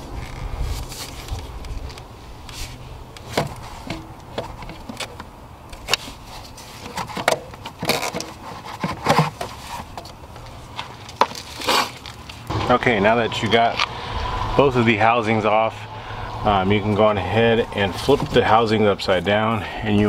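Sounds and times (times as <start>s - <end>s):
low steady hum: 0.0s - 20.0s
plastic parts clicking and knocking: 6.8s - 10.2s.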